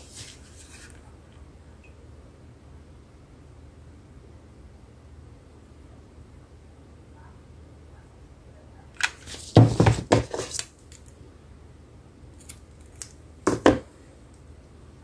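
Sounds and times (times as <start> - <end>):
knocks on craft table: 9.6 - 10.4, 13.5 - 13.9.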